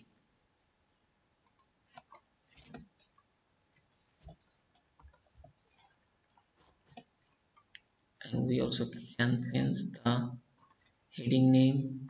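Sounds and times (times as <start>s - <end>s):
keyboard and mouse clicks: 1.4s - 7.9s, 10.5s - 11.0s.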